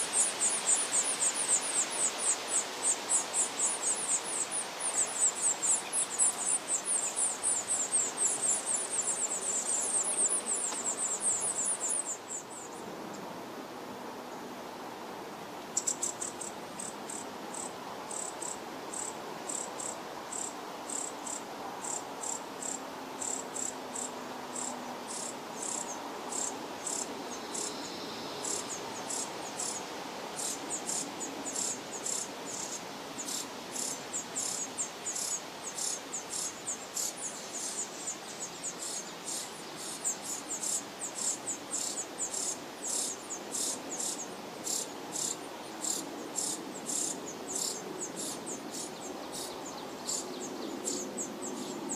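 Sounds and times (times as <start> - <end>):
nestlings begging calls: 0.0 - 12.7.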